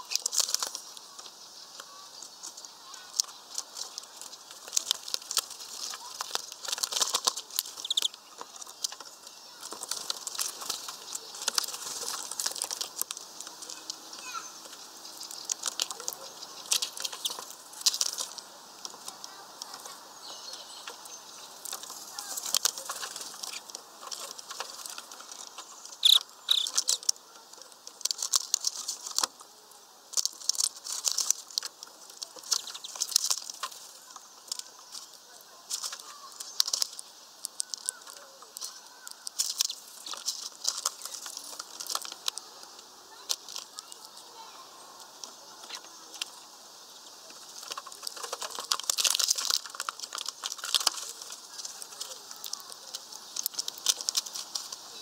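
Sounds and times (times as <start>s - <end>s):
birds pecking clicks: 0.0s - 55.0s
mesh bag crackling: 0.0s - 55.0s
wing flutters: 0.0s - 55.0s.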